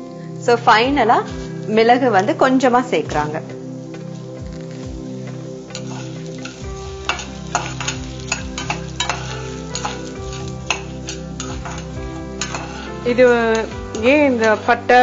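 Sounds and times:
light sizzle: 0.0s - 15.0s
metal spoon scraping pan: 5.7s - 15.0s.

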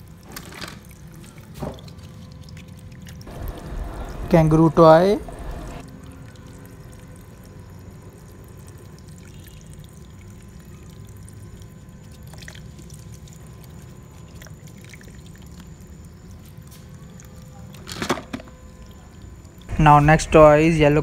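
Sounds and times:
tap water splashing on plastic: 0.2s - 3.3s.

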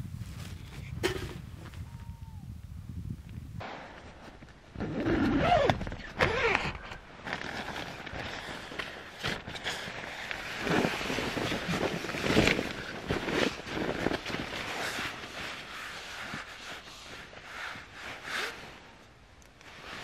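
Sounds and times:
nylon and jacket rustling: 4.0s - 20.0s.

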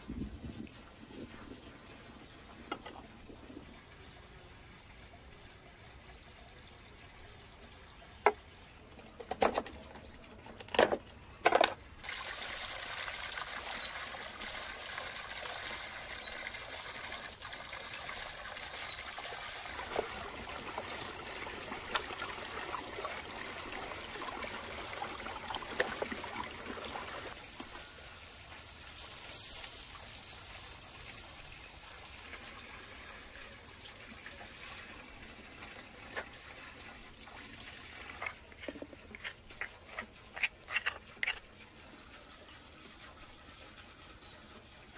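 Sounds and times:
water pouring from fountain spout: 11.9s - 44.9s.

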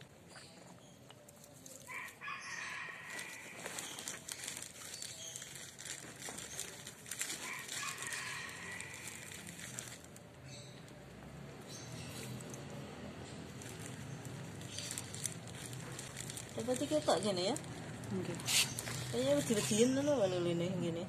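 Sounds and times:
rooster crowing: 1.9s - 3.8s, 7.4s - 9.4s.

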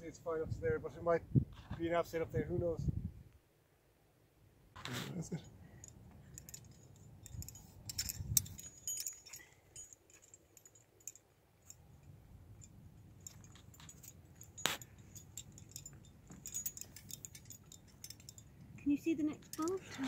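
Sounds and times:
climbing hardware clinking: 5.3s - 20.0s.

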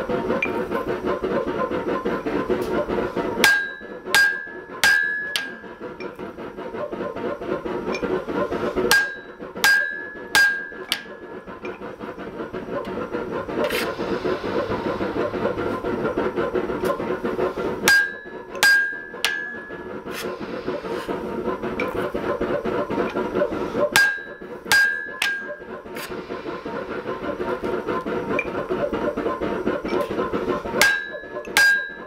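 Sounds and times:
steady drone: 0.0s - 32.0s
hammer striking punch on anvil: 3.4s - 5.5s, 8.9s - 11.1s, 17.9s - 19.6s, 24.0s - 25.5s, 30.8s - 32.0s.

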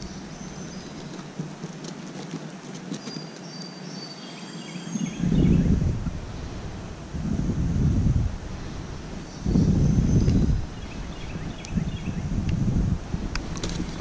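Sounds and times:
wind rumbling on microphone: 0.0s - 3.3s, 4.8s - 14.0s.

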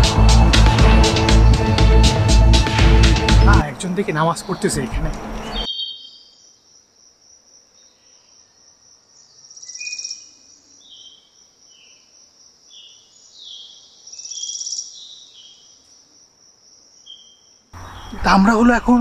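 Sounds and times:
birdsong with whistled notes: 4.4s - 6.6s, 9.1s - 12.1s, 12.7s - 15.9s, 17.0s - 18.3s
bird trills: 5.4s - 6.6s
insects chirring: 5.6s - 19.0s.

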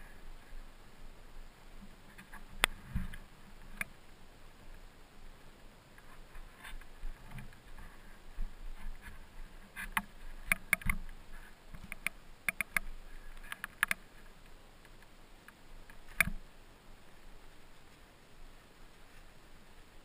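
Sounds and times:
sharp clicks and knocks: 9.8s - 14.0s.

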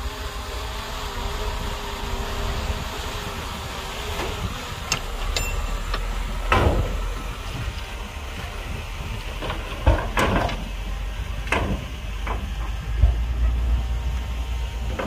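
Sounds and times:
diesel engine running: 0.0s - 15.0s
metallic clanks and knocks: 4.9s - 7.7s, 9.3s - 10.8s.

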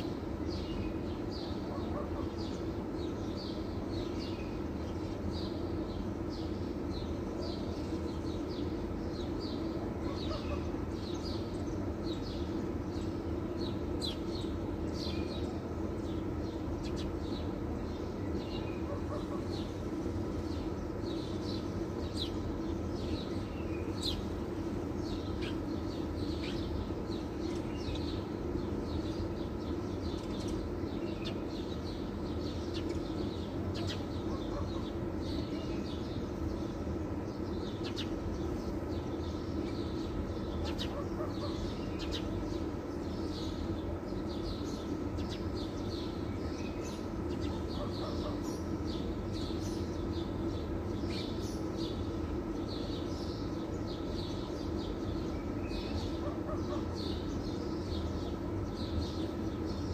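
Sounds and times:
low mechanical hum: 0.0s - 59.9s
small birds chirping: 0.0s - 59.9s.

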